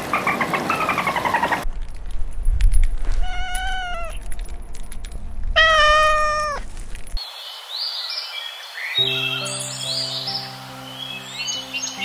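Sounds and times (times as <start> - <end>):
birds chirping: 0.0 - 1.7, 7.2 - 12.0
kitten meowing: 3.2 - 4.2, 5.6 - 6.6.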